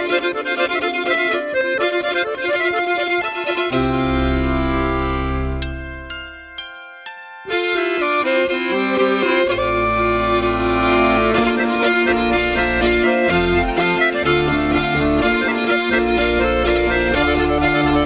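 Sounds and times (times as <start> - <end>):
melodeons playing folk tune: 0.0 - 18.0
low bass notes: 3.7 - 6.4, 9.4 - 18.0.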